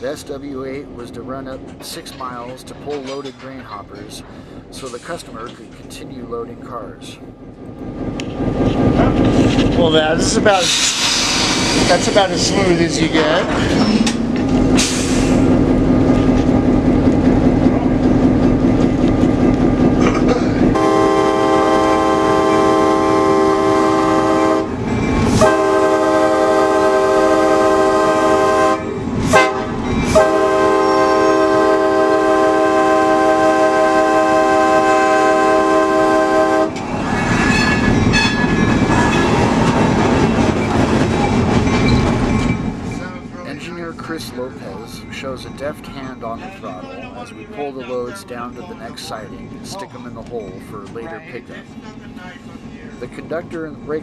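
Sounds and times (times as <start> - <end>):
locomotive diesel engine: 0.0 - 54.0
train wheels on rails: 0.0 - 54.0
locomotive air horn blasts: 20.7 - 36.8.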